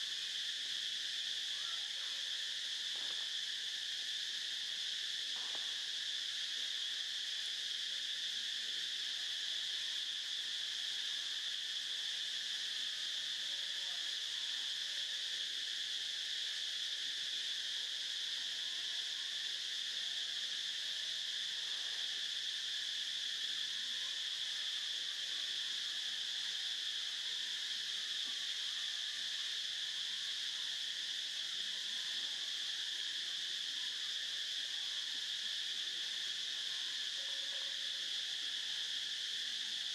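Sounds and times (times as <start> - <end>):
insects chorus drone: 0.0 - 39.9.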